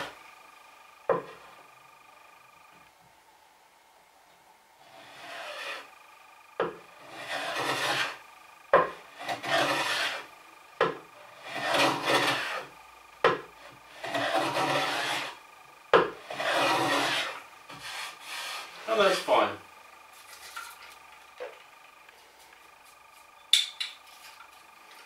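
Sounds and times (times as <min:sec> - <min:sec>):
hand plane shaving wood: 0:04.9 - 0:05.9, 0:06.9 - 0:08.2, 0:09.0 - 0:10.3, 0:11.3 - 0:12.7, 0:13.8 - 0:15.4, 0:16.2 - 0:19.3
plane knocking on wood: 0:06.6 - 0:08.1, 0:08.8 - 0:10.2, 0:13.2 - 0:13.5, 0:16.0 - 0:17.3.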